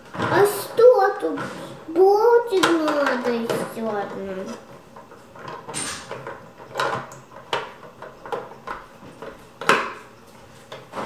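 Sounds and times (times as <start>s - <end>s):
plastic toy clicks and knocks: 2.4s - 4.6s, 5.4s - 10.0s.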